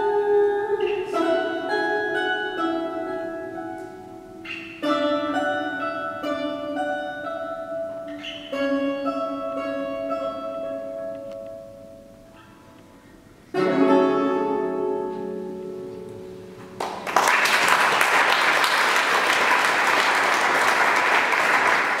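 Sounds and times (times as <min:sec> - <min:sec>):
guitars playing a chord: 0:00.0 - 0:17.1
audience applause: 0:16.8 - 0:22.0.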